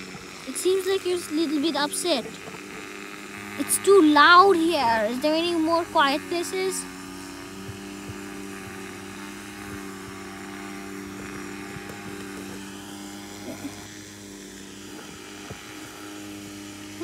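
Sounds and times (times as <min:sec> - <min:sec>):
steady electrical hum: 0:00.0 - 0:17.0.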